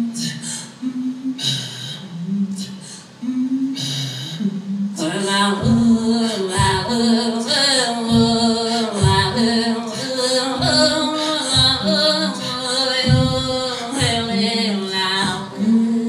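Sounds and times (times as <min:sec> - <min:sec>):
low throat singing pulses: 0:00.0 - 0:16.0
woman singing wavering notes: 0:00.0 - 0:16.0.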